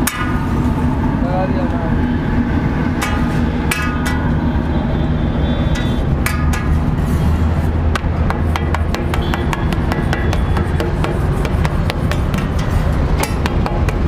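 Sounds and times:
metal utensils clanking: 0:02.9 - 0:04.4.

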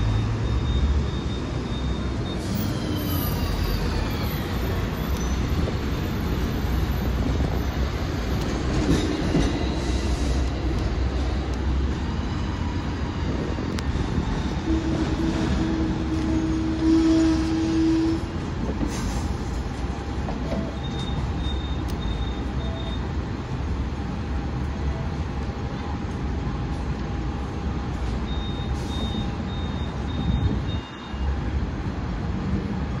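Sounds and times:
tram wheels rumbling: 0:00.0 - 0:33.0
tram whine: 0:00.0 - 0:33.0
short high beeps: 0:20.6 - 0:23.1, 0:28.3 - 0:31.4.

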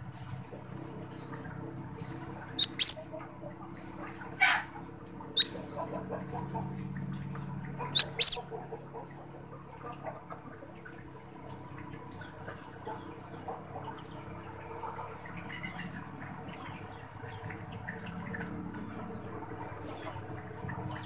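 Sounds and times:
sunbird high chip calls: 0:02.6 - 0:03.1, 0:04.4 - 0:04.7, 0:05.4 - 0:05.9, 0:07.8 - 0:08.5.

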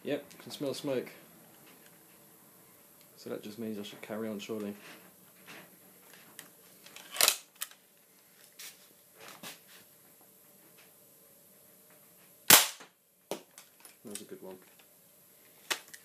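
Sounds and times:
faint steady hum: 0:00.0 - 0:16.0
air rifle shot crack: 0:12.5 - 0:12.9.

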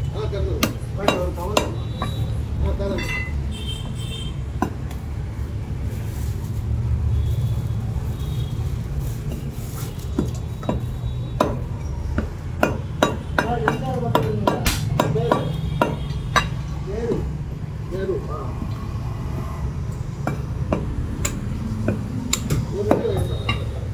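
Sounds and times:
cleaver chopping meat on wood: 0:00.5 - 0:02.3, 0:10.2 - 0:17.2, 0:20.2 - 0:23.4.

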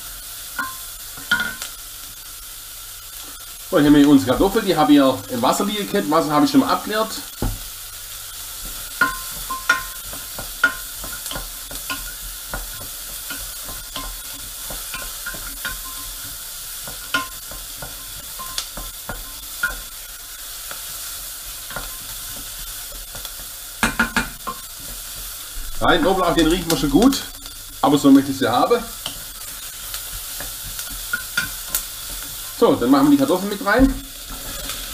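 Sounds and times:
onion sizzling in fat: 0:00.0 - 0:34.9
wooden spoon scraping pot: 0:28.9 - 0:34.9.

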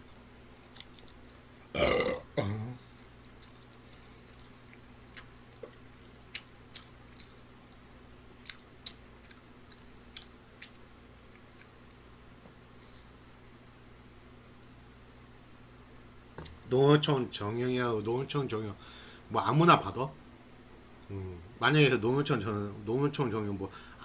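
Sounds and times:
man burping loudly: 0:01.7 - 0:02.8.

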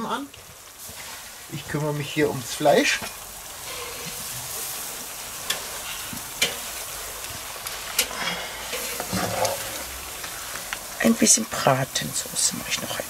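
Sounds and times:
vegetables sizzling in a pan: 0:00.0 - 0:13.0
wooden spatula knocking and scraping: 0:08.8 - 0:09.9.

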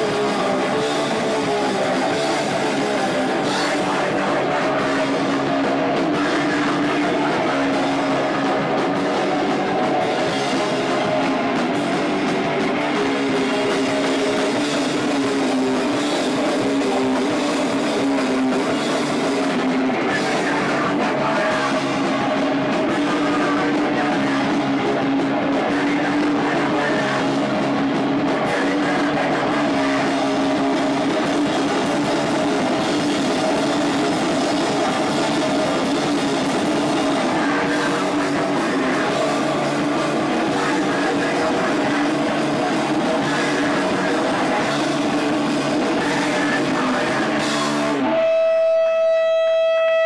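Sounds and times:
punk rock band playing: 0:00.0 - 0:50.0.

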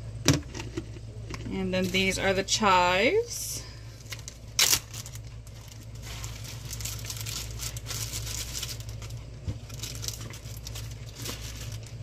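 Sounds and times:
plastic bag crinkling: 0:03.9 - 0:12.0.

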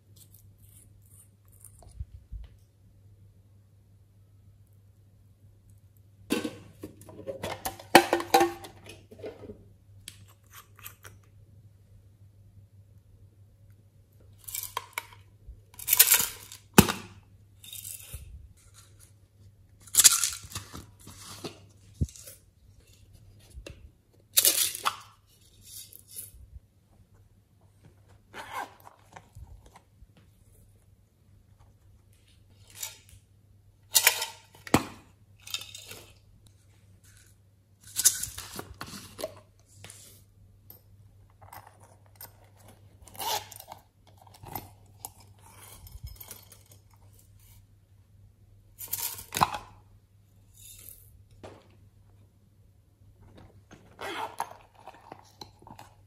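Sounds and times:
zippers pulled open: 0:53.9 - 0:54.9.

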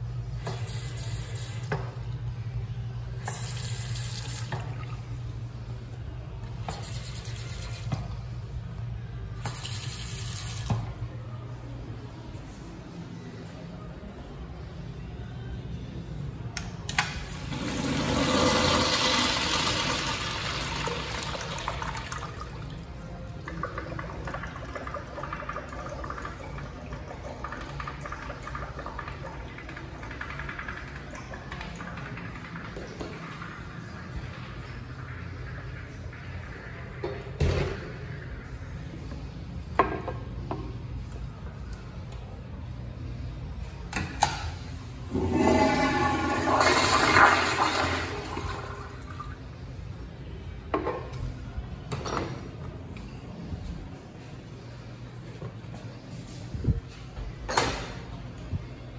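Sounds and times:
toilet flushing: 0:17.3 - 0:22.9, 0:45.0 - 0:49.4
urinal flush water running: 0:17.4 - 0:22.7, 0:23.5 - 0:37.0, 0:45.1 - 0:49.3.

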